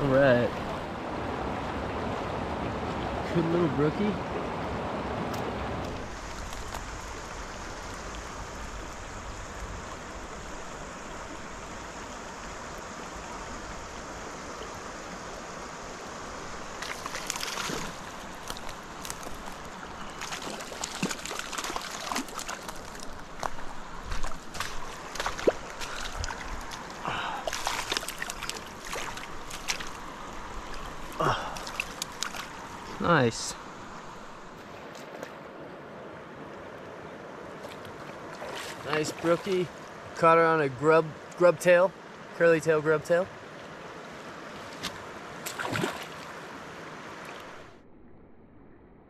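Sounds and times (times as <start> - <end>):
creek flowing over gravel: 0.0 - 47.8
short splashes: 16.8 - 30.0, 30.7 - 33.1, 37.6 - 39.5, 44.6 - 46.3.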